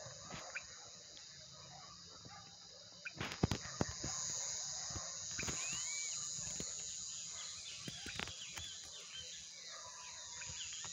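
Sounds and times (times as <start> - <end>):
high insect buzz: 0.0 - 10.9
whistled bird calls: 5.3 - 10.9.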